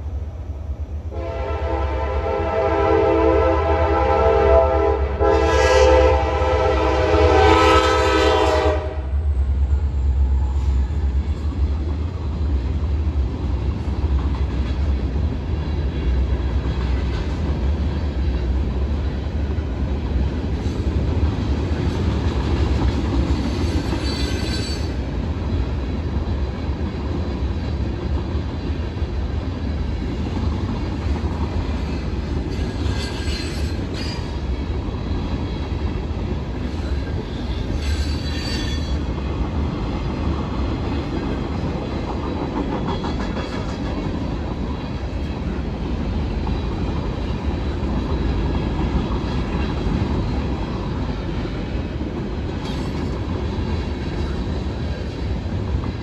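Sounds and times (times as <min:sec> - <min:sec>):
train rumbling past: 0:00.0 - 0:56.0
train horn blowing: 0:01.1 - 0:09.3.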